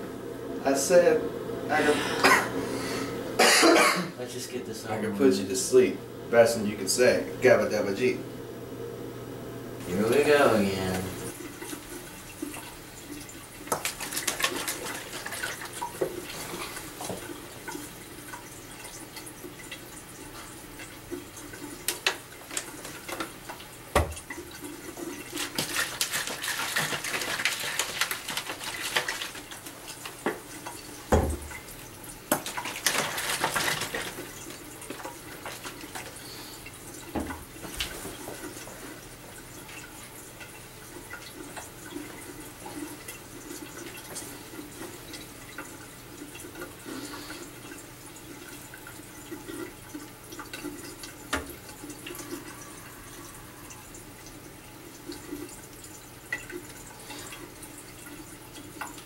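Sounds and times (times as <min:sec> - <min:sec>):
liquid pouring into plastic bottles: 0:11.3 - 0:59.0
bottles knocking on counter: 0:31.1 - 0:31.5.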